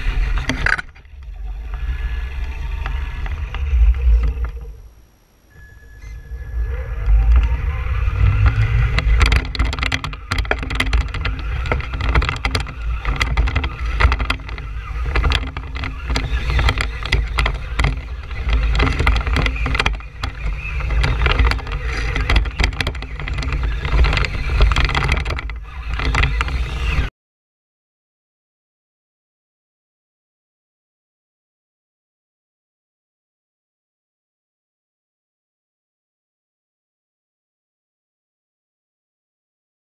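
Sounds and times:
electric motor whining: 0:00.0 - 0:27.1
wind rumble on microphone: 0:00.0 - 0:27.1
toy truck knocks and rattles: 0:00.1 - 0:01.2, 0:08.4 - 0:27.1.

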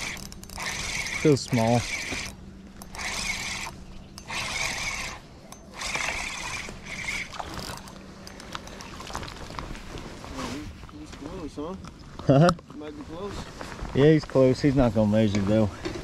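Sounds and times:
fishing reel winding: 0:00.0 - 0:09.0
steady low hum: 0:00.0 - 0:16.0.

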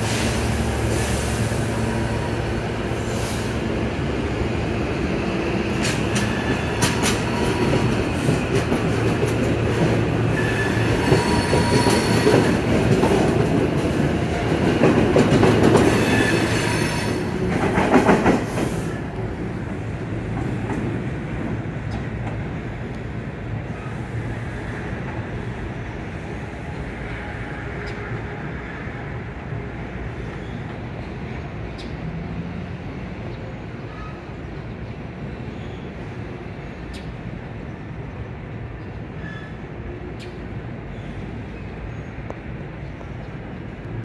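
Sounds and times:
electric train hum: 0:00.0 - 0:44.0
train rolling noise: 0:00.0 - 0:44.0
wheel squeals: 0:10.3 - 0:12.4.

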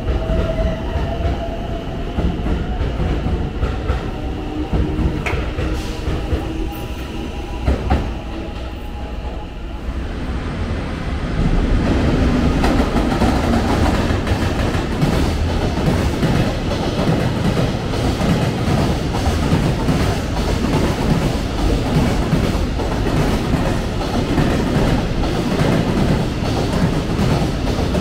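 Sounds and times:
freight train wheels on track: 0:00.0 - 0:28.0.

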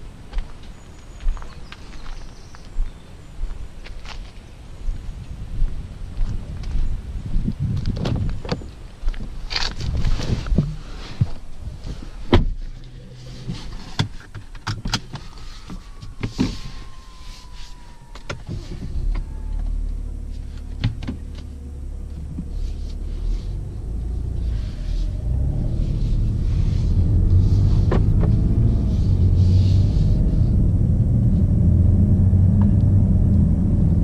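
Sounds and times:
diesel engine rumble: 0:00.0 - 0:34.0
car door shutting: 0:27.6 - 0:28.4.

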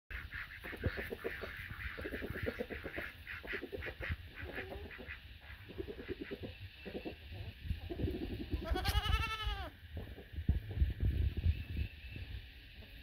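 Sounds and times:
poultry calling: 0:00.1 - 0:09.8.

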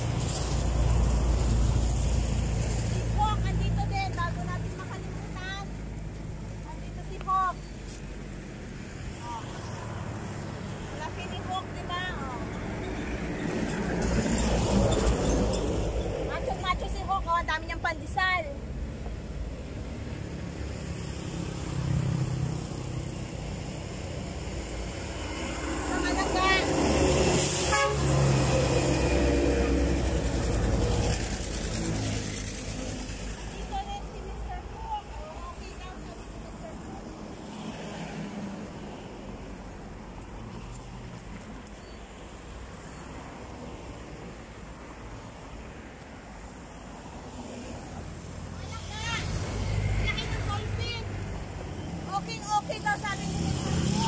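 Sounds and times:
highway traffic: 0:00.0 - 0:54.0
motor vehicle passing: 0:19.9 - 0:54.0.

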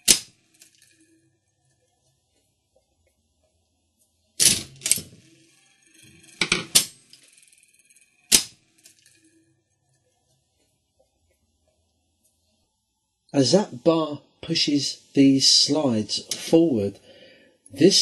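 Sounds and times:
metallic clacks of slot machine: 0:04.4 - 0:09.3.

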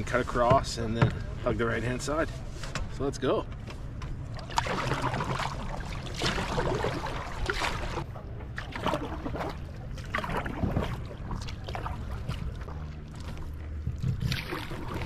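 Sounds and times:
paddle splashing in water: 0:04.3 - 0:15.0.

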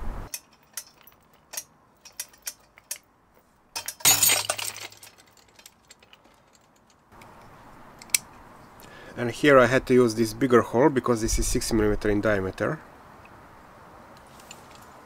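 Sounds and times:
metal click: 0:00.3 - 0:03.0
fixture and chain clinking: 0:00.3 - 0:03.1, 0:03.8 - 0:07.1.

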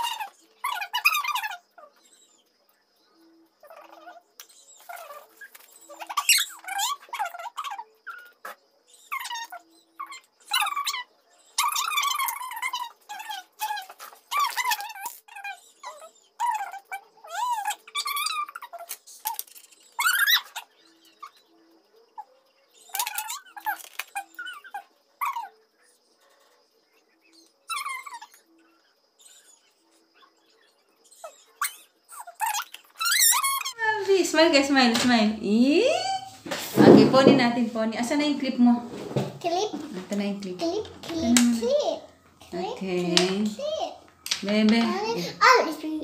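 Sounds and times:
dog whining and yelping: 0:04.9 - 0:19.4, 0:20.0 - 0:21.3, 0:22.2 - 0:25.6, 0:27.7 - 0:28.5, 0:31.1 - 0:33.8.

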